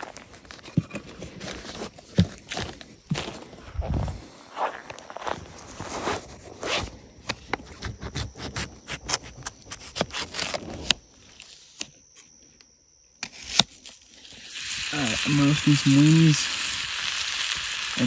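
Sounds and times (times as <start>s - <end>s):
knife peeling onion skin: 7.7s - 11.0s.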